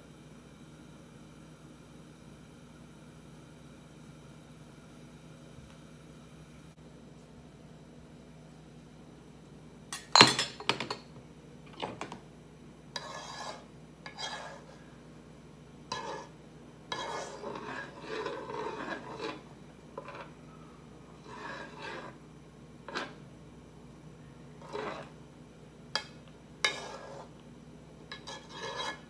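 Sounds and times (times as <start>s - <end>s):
utensils clinking: 10.0s - 11.1s
cookware scraping and clattering: 15.9s - 16.3s, 16.9s - 20.4s, 22.9s - 23.2s, 24.6s - 25.1s, 26.0s - 27.3s, 28.1s - 29.0s.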